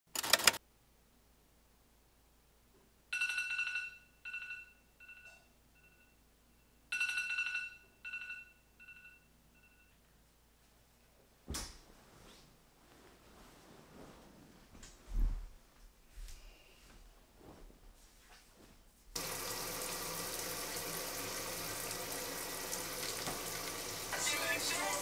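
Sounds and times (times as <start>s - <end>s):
phone alarm chime: 3.1s - 10.0s
bedding rustling: 11.4s - 19.1s.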